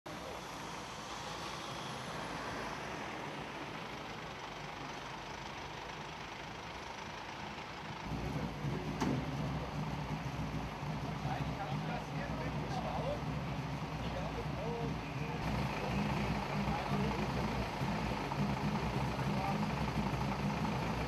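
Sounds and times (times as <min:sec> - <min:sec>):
diesel engines idling: 0:00.1 - 0:21.0.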